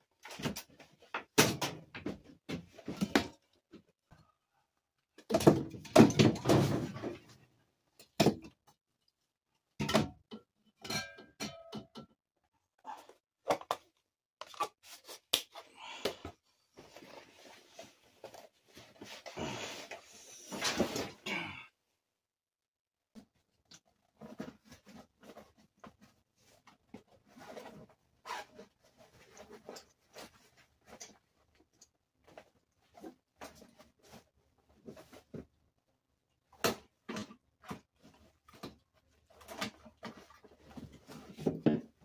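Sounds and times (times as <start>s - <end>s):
objects knocking and thudding: 0.2s - 3.8s, 5.2s - 7.4s, 8.0s - 8.6s, 9.7s - 12.2s, 36.6s - 42.0s.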